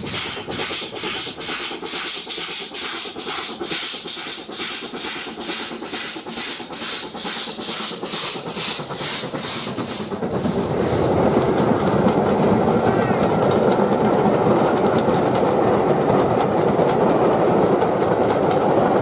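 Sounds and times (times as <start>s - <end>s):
steam hissing: 0.0s - 13.6s
steam locomotive exhaust beats: 0.0s - 19.0s
train passing rumble: 0.0s - 19.0s.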